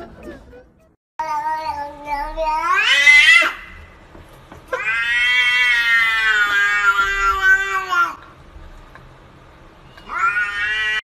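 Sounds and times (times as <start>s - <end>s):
cat yowling: 1.4s - 3.8s, 4.7s - 8.2s, 10.0s - 11.0s.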